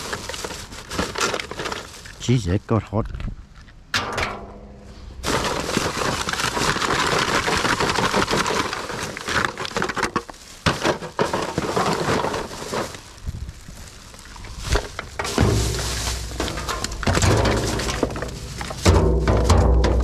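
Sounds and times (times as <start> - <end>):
rubbish crackling and crunching: 0.0 - 20.0.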